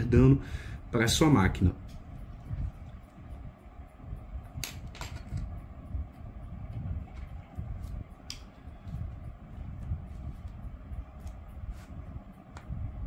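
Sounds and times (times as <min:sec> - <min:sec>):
rubbing and handling noise: 0:06.8 - 0:13.0.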